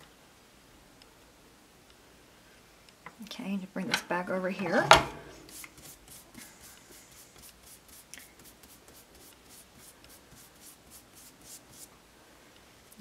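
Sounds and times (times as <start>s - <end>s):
foam brush strokes: 4.6s - 12.0s.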